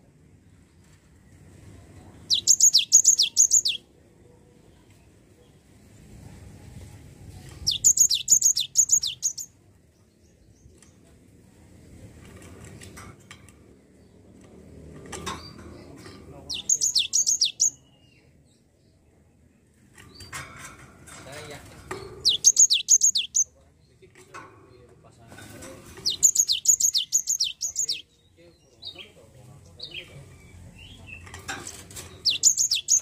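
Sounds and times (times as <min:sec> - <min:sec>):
bird singing descending notes: 0:02.3 - 0:03.8, 0:07.7 - 0:09.5, 0:16.5 - 0:17.8, 0:22.3 - 0:23.4, 0:26.0 - 0:28.1, 0:32.2 - 0:33.0.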